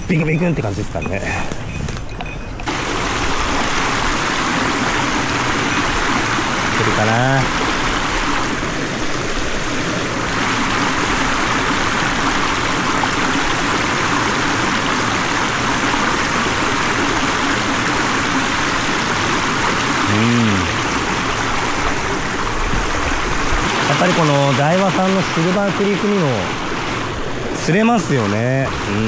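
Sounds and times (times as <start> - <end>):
stream rushing over rocks: 2.6 - 29.0
man's short vocal sound: 20.0 - 20.9.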